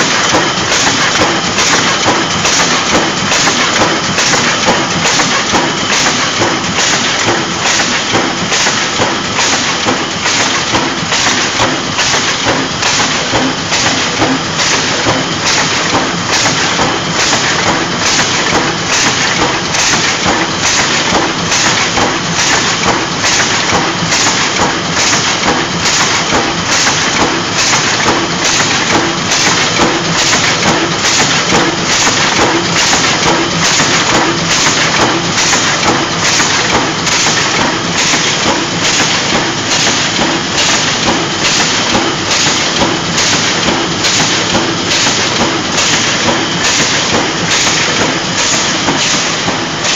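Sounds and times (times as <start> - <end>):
machine sheet feeder clattering: 0.0 - 49.9.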